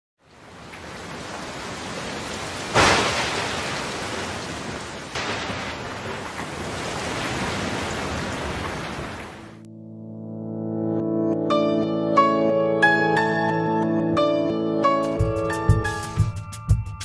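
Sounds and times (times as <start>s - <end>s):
steady rain: 0.2s - 9.6s
thunderclap rumbling: 1.0s - 9.5s.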